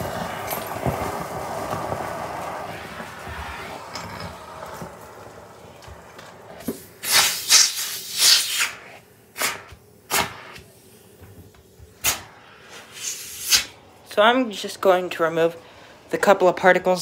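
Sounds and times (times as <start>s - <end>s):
rustling and scraping: 0.0s - 7.3s.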